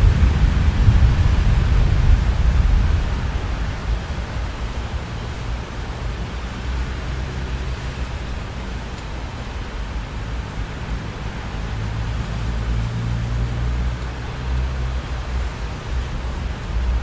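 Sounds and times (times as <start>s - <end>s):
rolling thunder: 0.0s - 4.9s
rain hiss: 0.0s - 17.0s.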